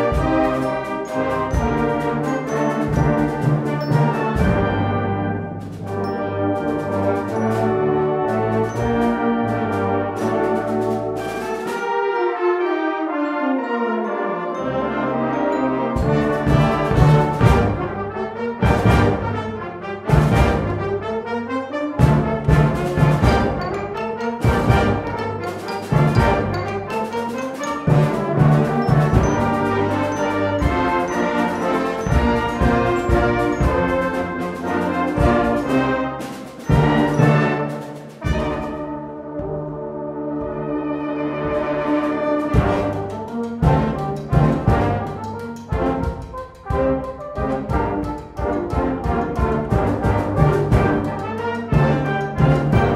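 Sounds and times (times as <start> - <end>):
percussion strikes: 0.0 - 12.1, 14.5 - 52.9
brass band music: 0.0 - 52.9.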